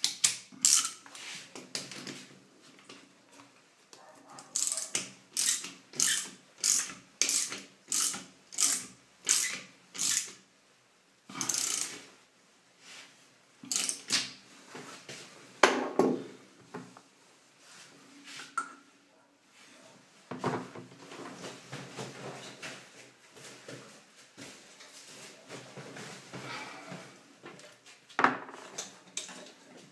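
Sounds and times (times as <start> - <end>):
ratchet wrench clicking: 4.6 - 10.4, 11.4 - 12.0, 13.7 - 14.1.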